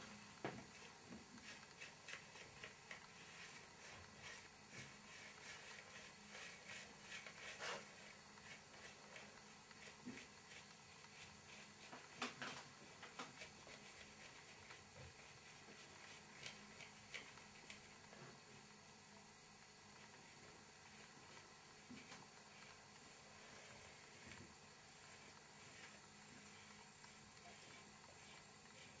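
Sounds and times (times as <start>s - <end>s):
paintbrush scratching on papier-mache: 0.7s - 12.1s, 13.3s - 18.0s, 25.0s - 29.0s.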